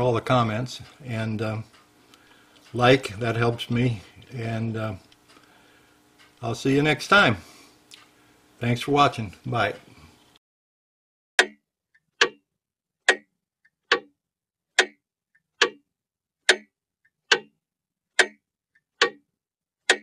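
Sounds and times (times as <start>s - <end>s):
mechanical clock ticking: 11.4s - 11.6s, 12.2s - 12.4s, 13.1s - 14.1s, 14.8s - 15.0s, 15.6s - 15.8s, 16.4s - 16.7s, 17.3s - 17.5s, 18.1s - 18.4s, 19.0s - 19.2s.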